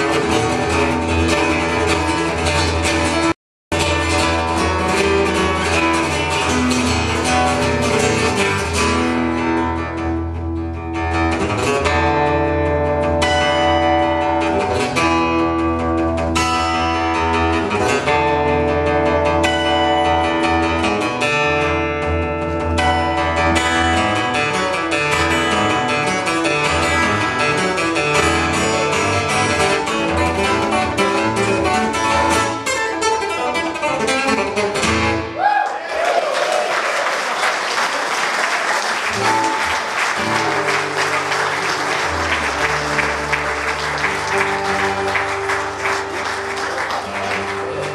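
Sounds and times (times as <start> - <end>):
fingerstyle acoustic guitar: 0.0 - 35.4, 39.1 - 47.9
audience applause: 35.4 - 47.9.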